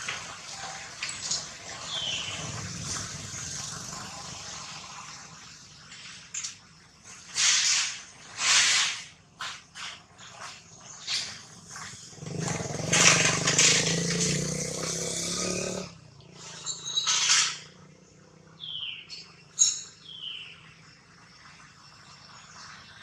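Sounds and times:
vehicle engine running loudly: 0:01.8 - 0:05.1, 0:11.6 - 0:18.6.

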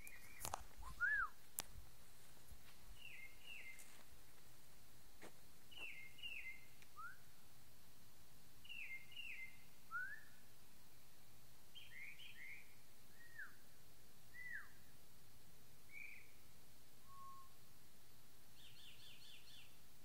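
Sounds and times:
night birds whistling: 0:00.0 - 0:01.4, 0:03.0 - 0:03.9, 0:05.7 - 0:07.3, 0:08.6 - 0:10.4, 0:11.8 - 0:13.6, 0:14.3 - 0:14.9, 0:15.9 - 0:16.4, 0:17.0 - 0:17.6, 0:18.6 - 0:19.8
person whistling: 0:00.8 - 0:01.3.

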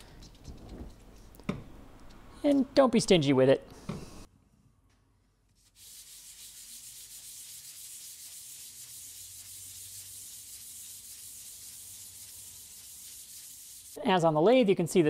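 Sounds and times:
metal rubbing on sandpaper: 0:05.6 - 0:14.0.

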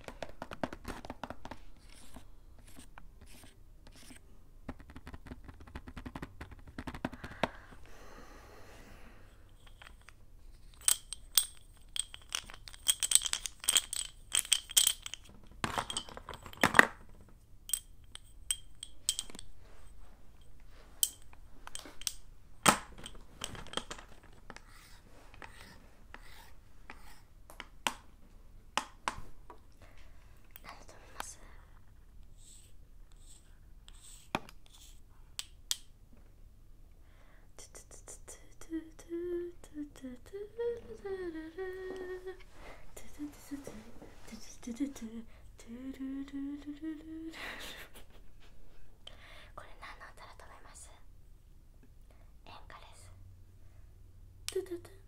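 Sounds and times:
chalk sticks clicking together: 0:09.5 - 0:16.9, 0:17.7 - 0:19.5, 0:21.0 - 0:22.2, 0:32.5 - 0:35.9.

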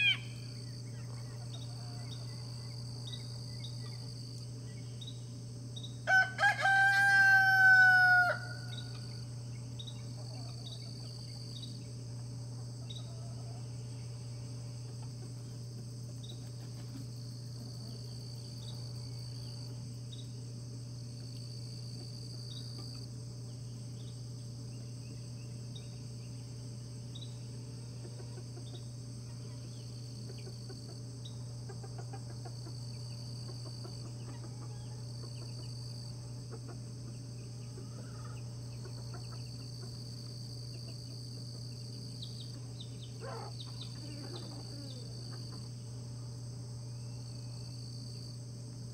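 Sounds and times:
insect droning: 0:00.0 - 0:48.9
low steady hum: 0:00.0 - 0:48.9
rooster crowing: 0:06.0 - 0:08.9.

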